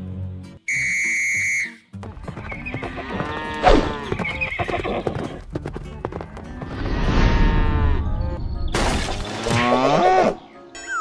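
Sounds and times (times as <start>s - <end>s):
hooves clip-clopping: 1.9s - 7.0s.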